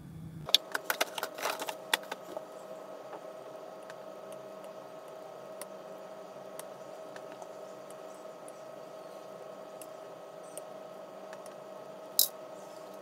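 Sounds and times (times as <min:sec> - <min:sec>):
steady hum: 0:00.0 - 0:13.0
plastic sprues clattering: 0:00.5 - 0:02.4.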